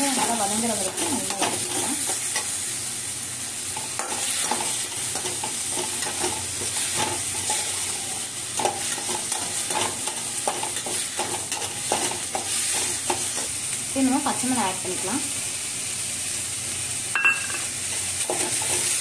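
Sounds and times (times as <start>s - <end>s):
steel spoon scraping a pan: 0.0s - 2.6s, 3.7s - 13.5s, 17.5s - 19.0s
onions sizzling in oil: 0.0s - 19.0s.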